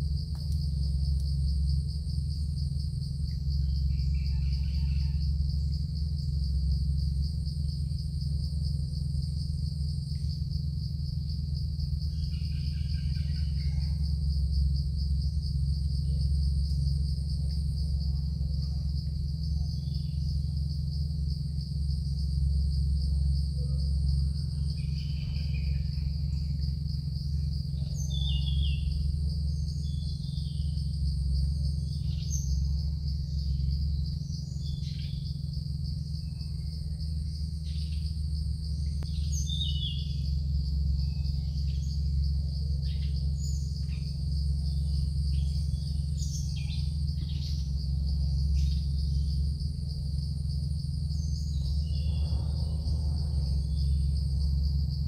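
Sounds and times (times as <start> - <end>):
insects trilling: 0.0 - 55.0
steady low hum: 0.0 - 55.0
bird chirps: 27.8 - 29.0, 39.1 - 40.4.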